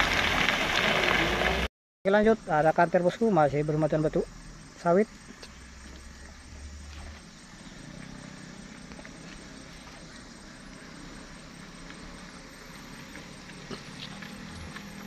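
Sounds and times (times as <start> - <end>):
diesel truck engine running: 5.6 - 15.0.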